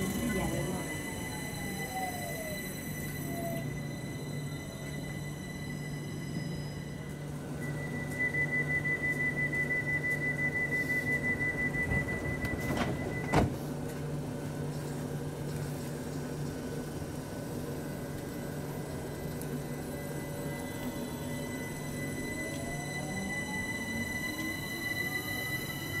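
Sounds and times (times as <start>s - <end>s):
pulsing door warning tone: 0.0s - 15.4s, 16.3s - 26.0s
electric train humming: 0.0s - 26.0s
train doors shutting knock: 11.6s - 13.7s.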